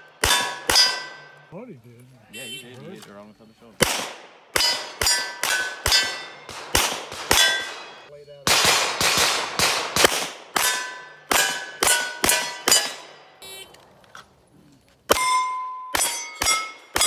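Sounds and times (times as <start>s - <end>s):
handgun shots: 0.2s - 1.1s, 3.8s - 13.0s
steel plate ringing: 0.2s - 1.4s, 4.6s - 6.5s, 10.6s - 13.3s, 15.1s - 17.0s.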